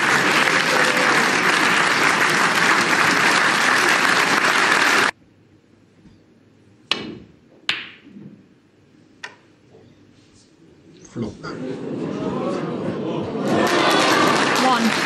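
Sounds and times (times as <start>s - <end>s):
audience applause: 0.0s - 5.2s, 11.9s - 15.0s.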